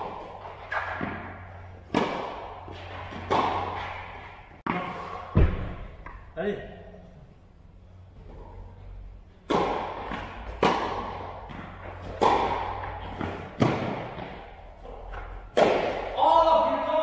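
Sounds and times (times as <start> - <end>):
tennis ball bounces: 0.0 - 4.8, 9.4 - 16.2
racket hitting tennis ball: 0.0 - 6.3, 9.4 - 16.2.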